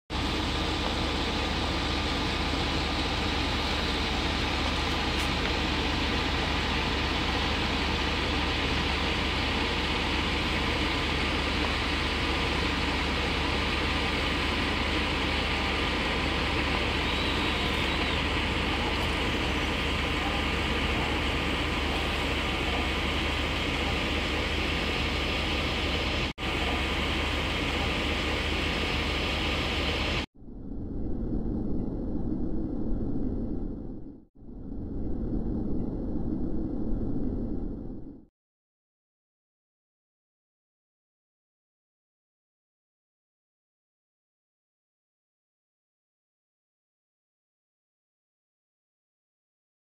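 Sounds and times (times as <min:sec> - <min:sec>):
constant outdoor rumble: 0:00.1 - 0:30.3
faint steady hum: 0:00.2 - 0:38.2.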